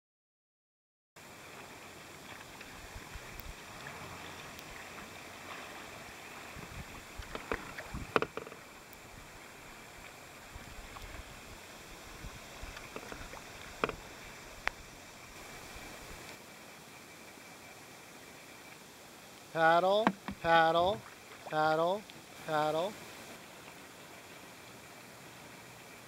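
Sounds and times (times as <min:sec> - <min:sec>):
kayak paddles splashing: 0:01.2 - 0:16.5, 0:18.0 - 0:26.0
river water lapping: 0:01.2 - 0:26.0
sharp knocks: 0:07.4 - 0:08.6, 0:20.0 - 0:20.6.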